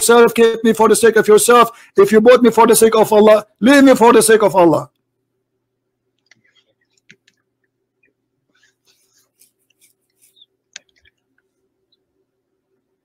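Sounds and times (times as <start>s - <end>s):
low steady hum: 0.0s - 13.0s
faint clicks and handling noises: 6.1s - 11.6s.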